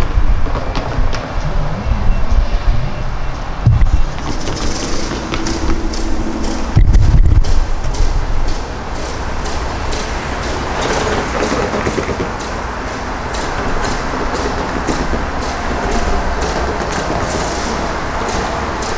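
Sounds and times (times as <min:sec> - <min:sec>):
freight train rumbling: 0:00.0 - 0:18.9
regular clicking of train wheels: 0:04.2 - 0:18.9.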